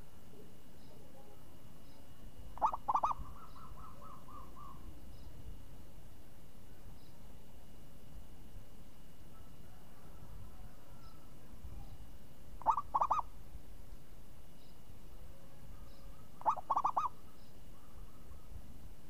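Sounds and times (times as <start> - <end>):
dove cooing: 2.6 - 4.9, 12.6 - 13.4, 15.7 - 18.6.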